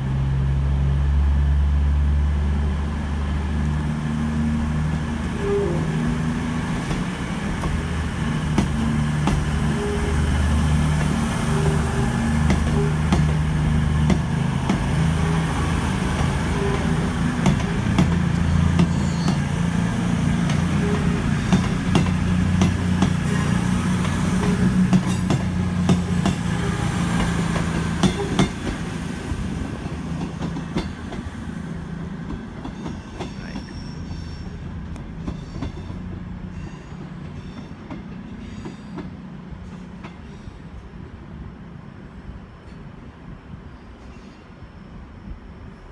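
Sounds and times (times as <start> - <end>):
diesel train engines humming: 0.0 - 45.9
train wheels clicking on rail joints: 6.7 - 9.8, 10.8 - 15.2, 15.8 - 34.2, 34.8 - 40.9.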